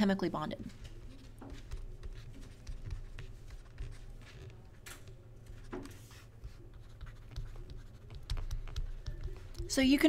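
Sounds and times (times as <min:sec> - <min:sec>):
stylus scratching on screen: 0:00.7 - 0:10.0.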